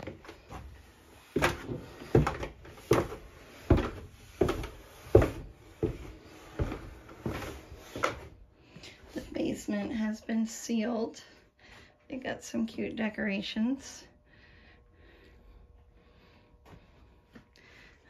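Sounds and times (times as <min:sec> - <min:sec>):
footsteps on wooden stairs: 0:00.0 - 0:08.4.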